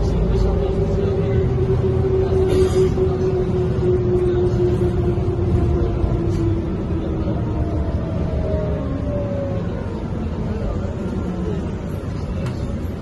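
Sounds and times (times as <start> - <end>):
bus engine and road rumble: 0.0 - 13.0.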